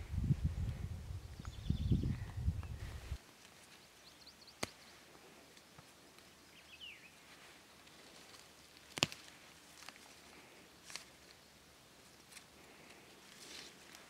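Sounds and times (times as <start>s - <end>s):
plant stalks snapping: 4.6s - 4.8s, 8.3s - 10.1s, 10.8s - 11.2s.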